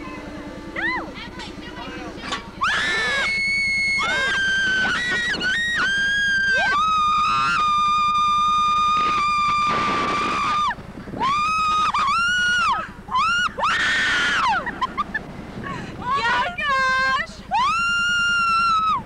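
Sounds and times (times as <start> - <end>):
girls screaming: 2.6 - 8.2, 10.3 - 14.7.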